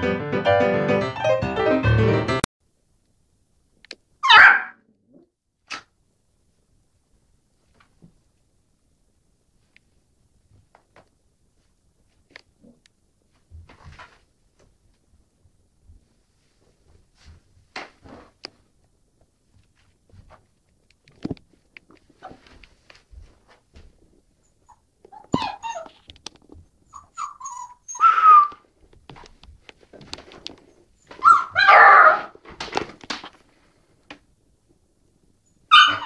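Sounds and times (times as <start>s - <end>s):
puppy whining and yelping: 4.2s - 4.7s, 24.4s - 26.0s, 26.8s - 28.7s, 31.0s - 32.3s, 35.7s - 36.0s
faint taps and scuffs: 15.8s - 24.3s, 28.8s - 31.3s.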